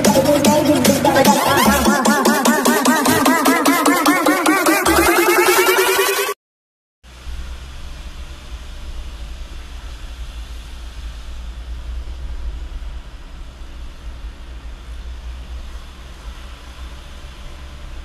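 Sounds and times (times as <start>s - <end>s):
truck engine rumble: 7.1s - 18.0s.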